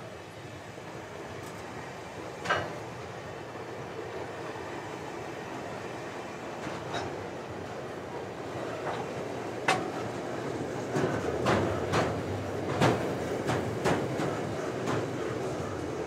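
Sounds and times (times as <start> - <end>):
metallic clanks from train wheels: 2.4 - 3.0, 6.6 - 7.3, 8.8 - 10.1, 10.9 - 15.2
train wagons rumbling: 6.4 - 16.0.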